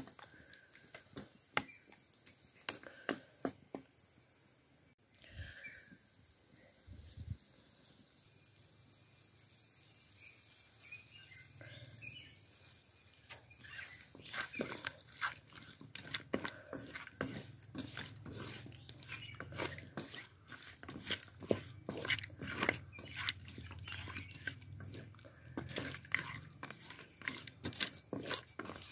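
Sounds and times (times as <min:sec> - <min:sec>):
spatula scraping a metal pan: 0:12.4 - 0:28.9.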